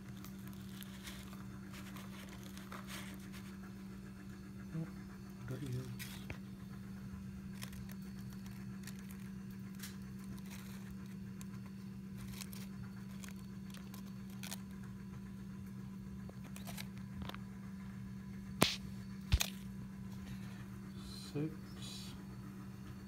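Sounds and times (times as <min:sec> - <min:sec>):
low steady hum: 0:00.0 - 0:23.0
sharp click: 0:18.6 - 0:19.5.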